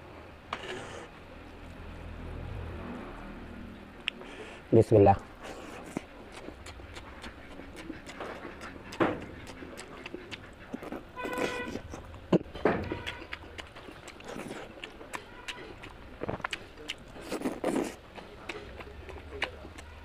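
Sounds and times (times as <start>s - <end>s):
wet chewing and lip smacks: 5.4s - 20.0s.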